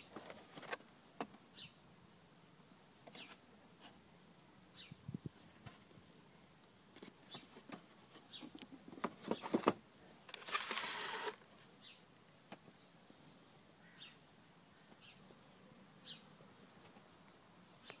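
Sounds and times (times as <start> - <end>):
box sliding: 10.4 - 11.4.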